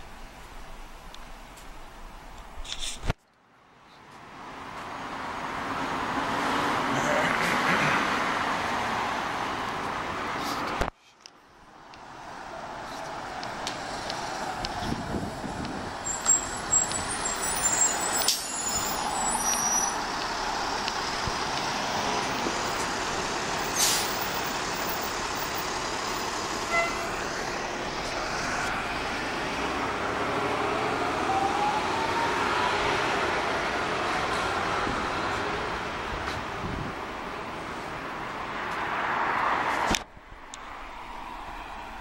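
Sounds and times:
bus engine and tyres passing: 0:00.0 - 0:42.0
vehicle pulling away whine: 0:13.8 - 0:36.2
air brake hiss: 0:23.7 - 0:24.2.

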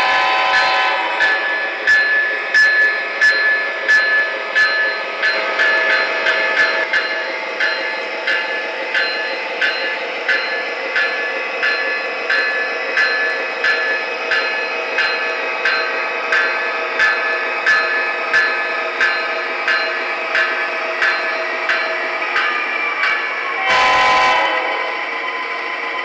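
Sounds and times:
model train running on track: 0:00.0 - 0:26.0
sharp regular track click: 0:01.1 - 0:23.4.

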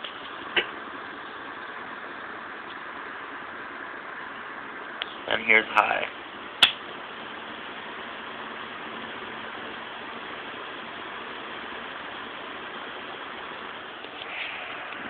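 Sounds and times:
box fan air rush: 0:00.0 - 0:15.0
fan motor hum: 0:00.0 - 0:15.0
sharp click: 0:06.6 - 0:06.8.

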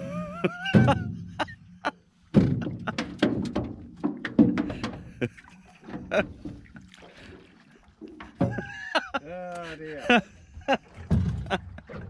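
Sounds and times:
knocks and thuds on boat hull: 0:00.5 - 0:01.5, 0:02.3 - 0:06.8, 0:08.0 - 0:09.0, 0:10.9 - 0:12.0.

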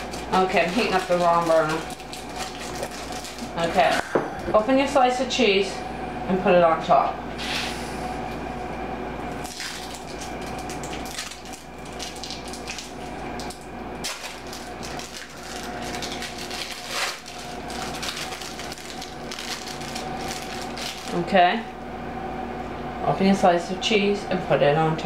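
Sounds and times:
plastic wrappers crinkling: 0:00.0 - 0:04.0, 0:09.4 - 0:21.2
steady background hum: 0:00.0 - 0:25.0.

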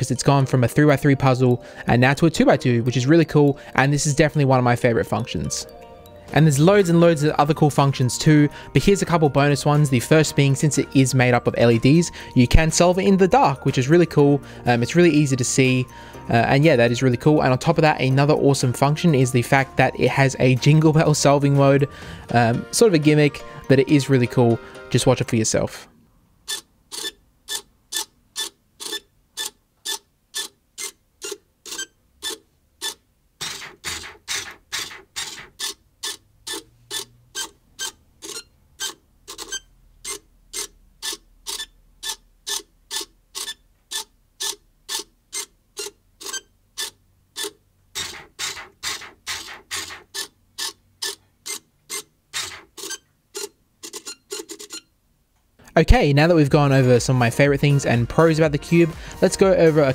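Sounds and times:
robotic cube whirring clicks: 0:32.2 - 0:37.5, 0:46.8 - 0:54.8.

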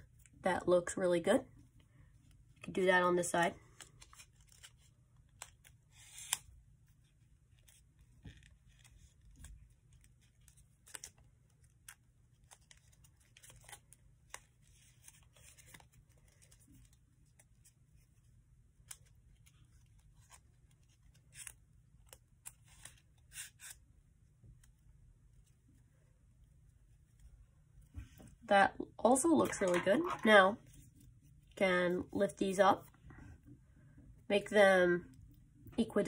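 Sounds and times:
paper rustling and crinkling: 0:07.5 - 0:18.2.

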